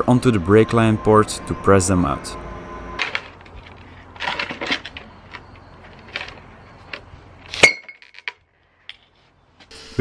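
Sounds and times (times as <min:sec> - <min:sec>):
low steady hum: 0:00.0 - 0:07.5.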